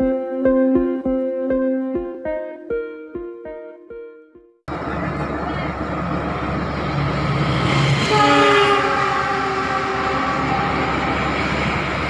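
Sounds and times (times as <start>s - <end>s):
freight train rumble: 4.7s - 12.0s
locomotive horn blast: 7.8s - 12.0s.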